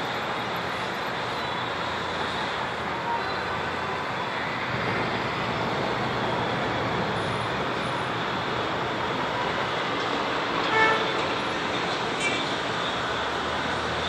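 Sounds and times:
city street traffic: 0:00.0 - 0:14.0
car horn toot: 0:10.7 - 0:11.1.

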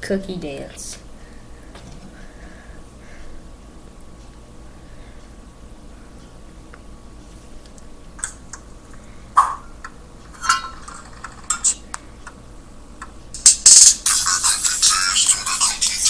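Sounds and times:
taps on a touchscreen: 0:09.4 - 0:10.0.

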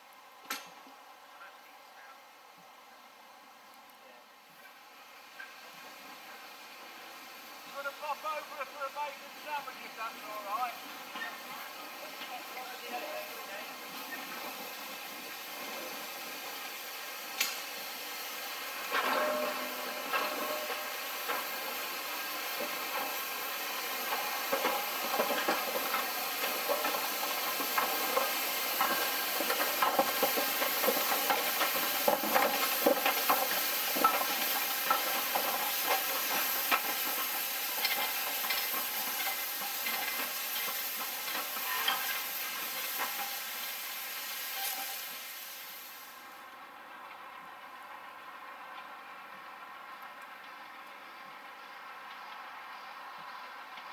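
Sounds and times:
steam locomotive hissing: 0:04.3 - 0:46.7
clicks and clanks: 0:18.9 - 0:21.5.

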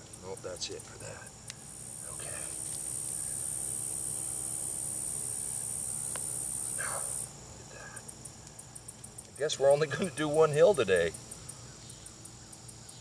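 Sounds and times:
high-pitched insect trill: 0:00.0 - 0:13.0
faint chirps: 0:05.2 - 0:09.0.

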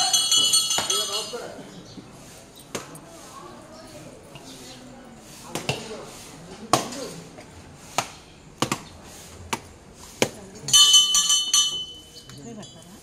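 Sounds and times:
metal bell ringing rapidly: 0:00.0 - 0:01.5, 0:10.7 - 0:12.2.

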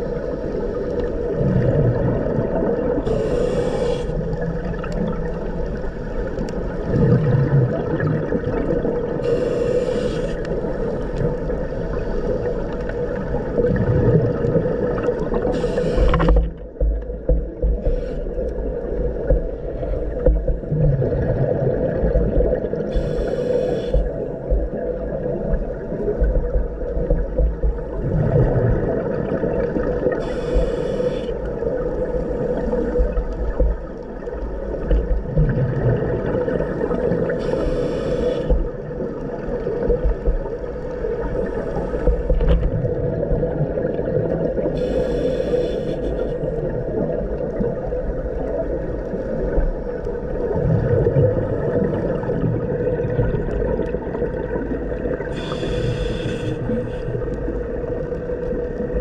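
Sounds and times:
regulator exhale bubbling: 0:00.0 - 0:16.6, 0:50.4 - 0:58.0
muffled underwater rumble and hum: 0:00.0 - 0:59.0.

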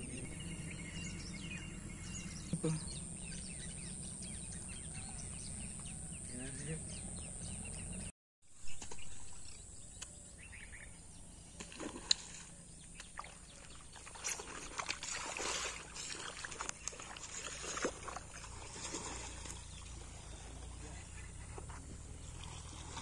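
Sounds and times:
fish splashing in water: 0:11.6 - 0:23.0.

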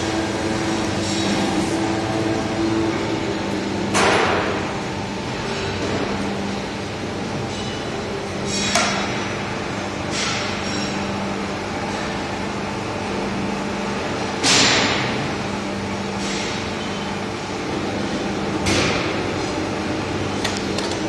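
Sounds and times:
electric chain hoist humming: 0:00.0 - 0:08.7.

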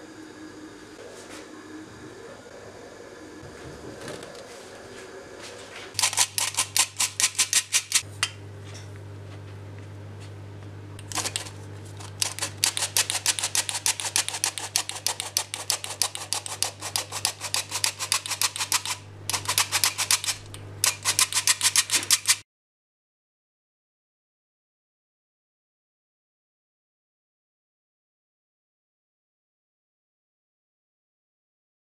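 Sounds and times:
flour sifter clicking: 0:06.0 - 0:08.0, 0:11.0 - 0:22.4.

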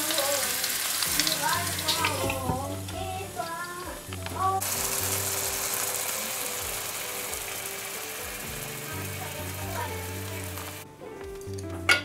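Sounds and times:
meat sizzling in hot oil: 0:00.0 - 0:10.8
background music: 0:00.0 - 0:12.0.

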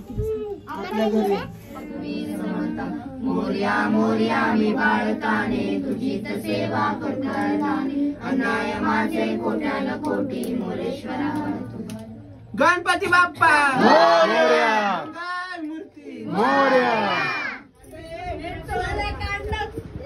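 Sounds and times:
group singing a hymn: 0:01.7 - 0:12.4, 0:13.8 - 0:15.1, 0:16.0 - 0:19.0.

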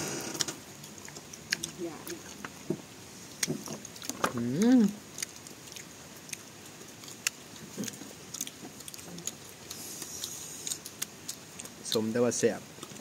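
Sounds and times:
person chewing with small crunches: 0:00.3 - 0:13.0.

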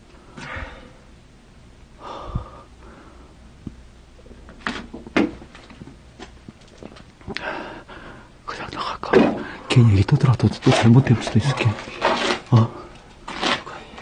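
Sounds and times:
person breathing: 0:00.3 - 0:01.1, 0:02.0 - 0:03.5, 0:07.3 - 0:08.4.

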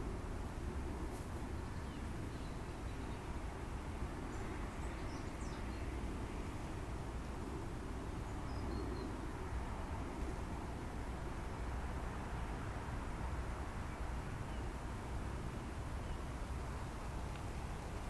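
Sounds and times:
faint bird chirps: 0:08.2 - 0:09.3.

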